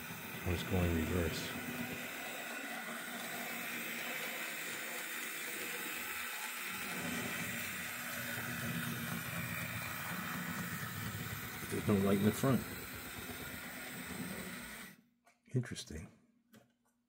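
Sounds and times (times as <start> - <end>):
model locomotive running on track: 0.0 - 15.0.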